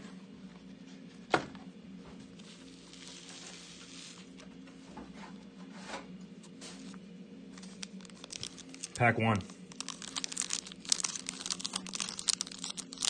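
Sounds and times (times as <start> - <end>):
low steady hum: 0.0 - 13.0
foil packs rustling: 2.4 - 4.4, 7.6 - 13.0.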